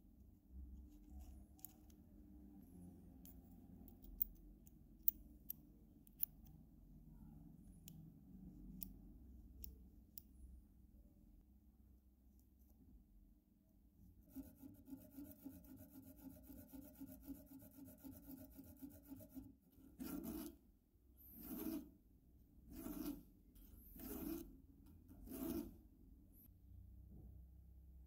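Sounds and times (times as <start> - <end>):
fast buzzing scrape: 14.3 - 20.6, 21.2 - 22.0, 22.7 - 24.5, 25.1 - 25.8
hand file rasping on metal: 14.4 - 20.6, 21.2 - 21.9, 22.7 - 24.5, 25.1 - 25.8.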